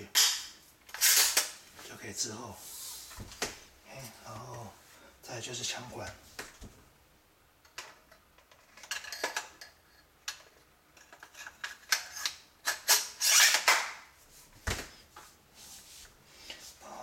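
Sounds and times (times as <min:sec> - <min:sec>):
metal clicks and scraping: 0:07.6 - 0:13.8.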